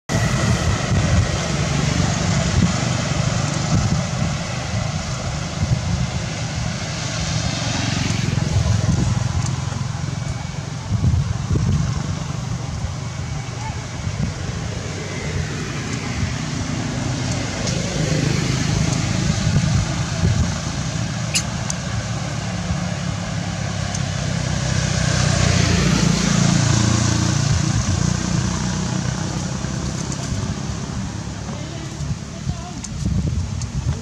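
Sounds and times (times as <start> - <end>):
traffic rumble: 0.1 - 34.0
sharp click: 21.3 - 21.8.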